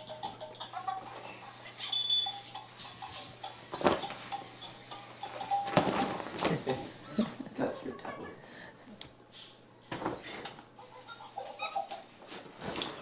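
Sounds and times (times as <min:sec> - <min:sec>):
electronic beeping toy tune: 0:01.8 - 0:02.6.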